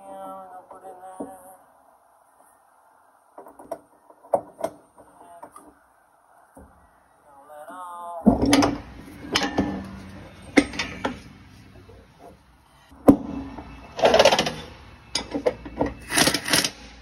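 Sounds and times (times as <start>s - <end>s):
tool clanking on metal: 8.3s - 11.4s.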